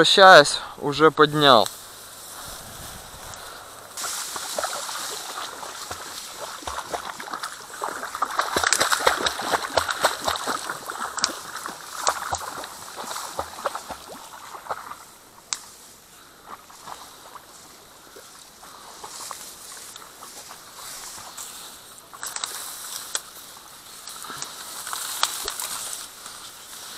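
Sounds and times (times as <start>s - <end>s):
reeds crackling and rustling: 0.3s - 26.9s
reed stem snapping: 1.6s - 13.7s, 22.1s - 23.4s, 24.0s - 26.5s
sloshing steps in water: 4.0s - 15.0s.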